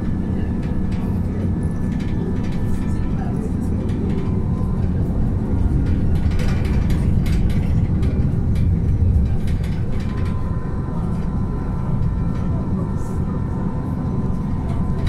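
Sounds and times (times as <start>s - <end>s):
bus engine and road rumble: 0.0s - 15.0s
bus fittings rattling: 3.8s - 10.4s.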